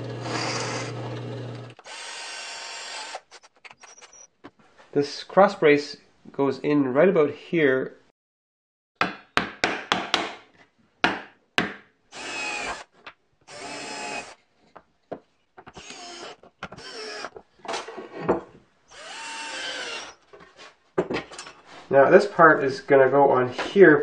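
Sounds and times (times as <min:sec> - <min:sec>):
cordless drill driving screws: 0:00.1 - 0:04.2, 0:12.1 - 0:12.9, 0:13.5 - 0:14.4, 0:15.7 - 0:17.4, 0:18.9 - 0:20.2.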